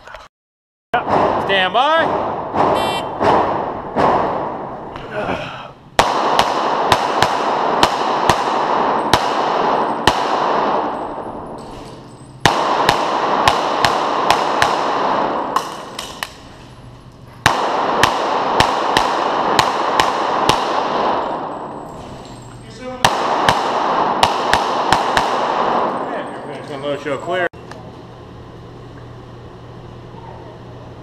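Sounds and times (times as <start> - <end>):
pistol shots echoing indoors: 1.0 - 1.4, 2.0 - 4.9, 6.0 - 16.5, 17.4 - 26.2.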